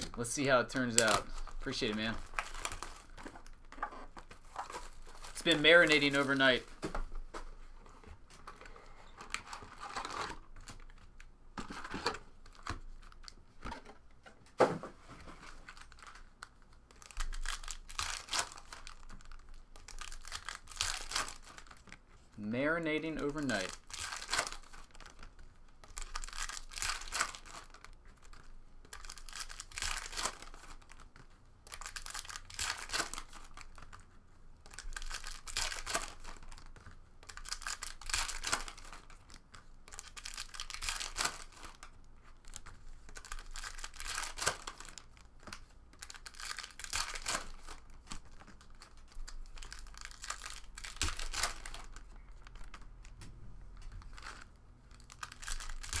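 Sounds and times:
card pack wrappers tearing: 0:00.0 - 0:03.6, 0:04.2 - 0:06.6, 0:15.6 - 0:22.0, 0:22.8 - 0:34.0, 0:34.6 - 0:53.2, 0:53.8 - 0:56.0.

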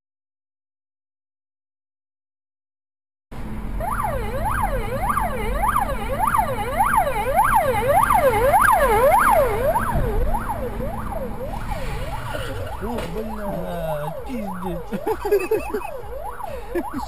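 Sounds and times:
engine and road rumble: 0:03.3 - 0:17.0
emergency siren yelping: 0:03.8 - 0:17.0.

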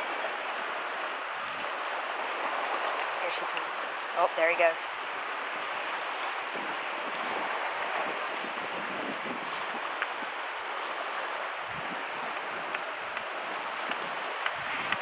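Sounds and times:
sea surf washing: 0:00.0 - 0:15.0.

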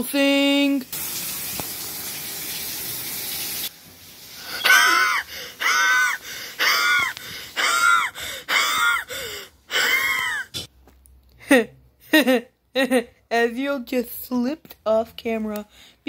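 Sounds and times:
running water hiss: 0:00.7 - 0:07.6.

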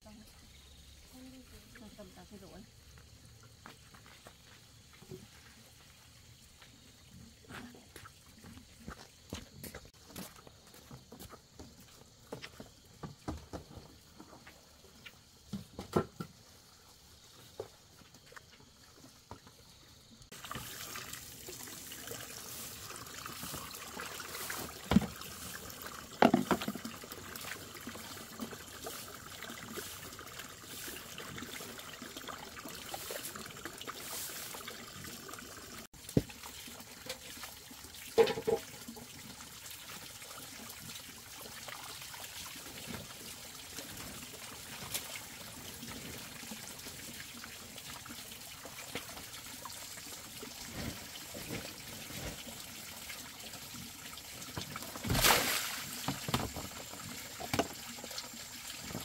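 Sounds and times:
water splashes: 0:20.3 - 0:59.0
water trickling into basin: 0:20.3 - 0:59.0
hands swishing leaves in water: 0:21.9 - 0:26.7, 0:32.9 - 0:34.7, 0:54.8 - 0:56.8.

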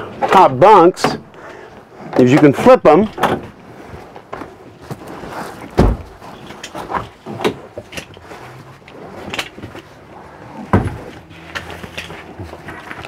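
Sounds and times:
mattress and net rustling: 0:03.7 - 0:13.0
heavy thump: 0:05.8 - 0:06.2, 0:10.7 - 0:11.1.

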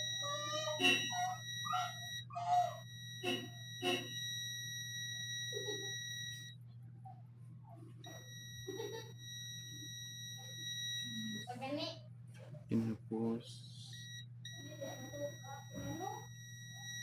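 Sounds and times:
multimeter continuity beep: 0:00.0 - 0:06.6, 0:08.0 - 0:11.6, 0:13.9 - 0:17.0
low steady hum: 0:00.0 - 0:17.0.

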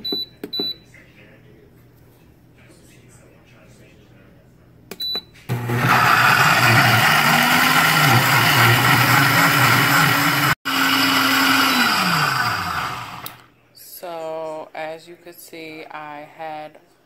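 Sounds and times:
blender running: 0:05.5 - 0:13.5.

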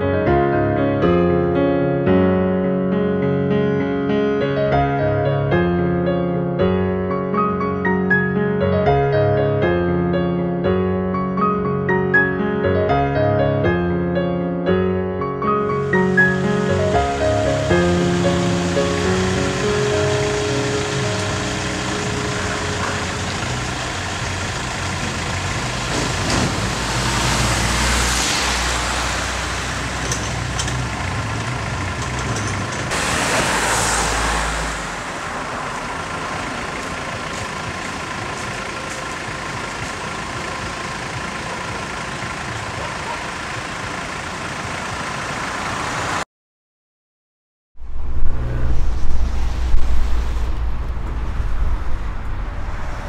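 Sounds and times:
road traffic: 0:15.5 - 0:46.2, 0:47.8 - 0:53.0.

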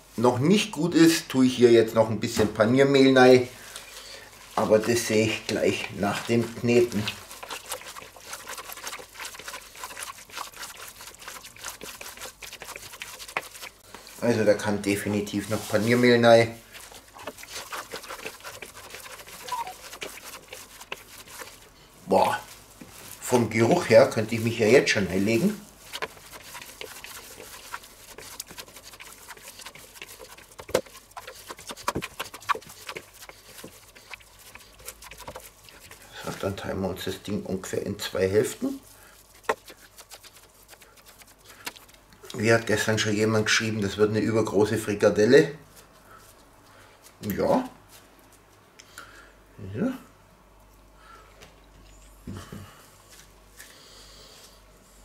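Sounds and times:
wet meat squelching: 0:04.6 - 0:21.8, 0:22.4 - 0:37.4, 0:38.1 - 0:42.5.

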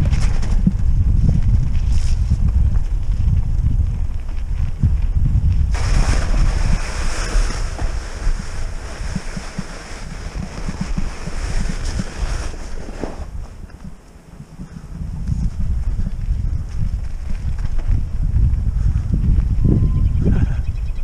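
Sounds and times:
tyres rolling over trail: 0:00.0 - 0:19.6
wind buffeting microphone: 0:00.0 - 0:21.0.

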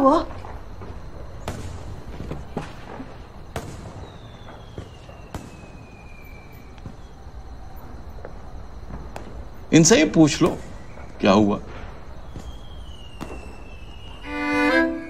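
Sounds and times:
firecracker cracks: 0:01.4 - 0:07.3, 0:10.2 - 0:14.3
thin falling whistle: 0:03.9 - 0:07.2, 0:12.2 - 0:15.0.

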